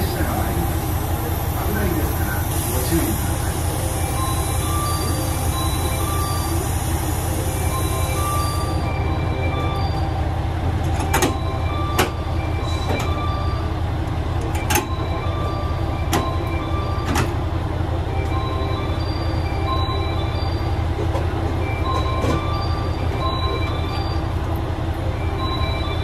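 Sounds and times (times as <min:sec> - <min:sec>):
air hiss: 0:00.0 - 0:08.6
diesel engine idling: 0:00.0 - 0:26.0.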